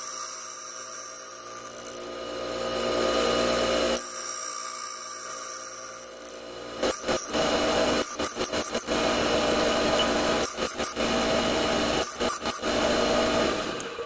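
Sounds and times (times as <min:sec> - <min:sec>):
bench grinder grinding steel: 0:00.0 - 0:14.0.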